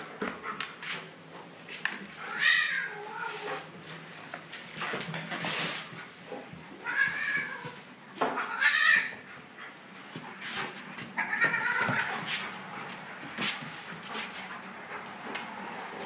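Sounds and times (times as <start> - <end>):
cat and dog tussling on tiles: 0.0 - 16.0
high-pitched animal cries: 8.4 - 9.2.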